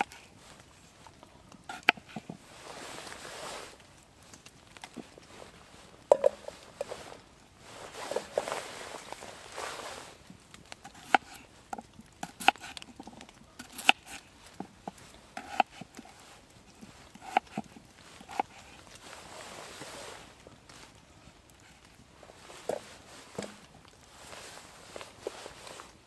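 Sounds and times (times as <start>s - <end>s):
knife cutting through potatoes: 1.7s - 2.3s, 10.9s - 11.4s, 12.2s - 12.9s, 13.6s - 14.3s, 15.4s - 16.1s, 17.2s - 18.7s.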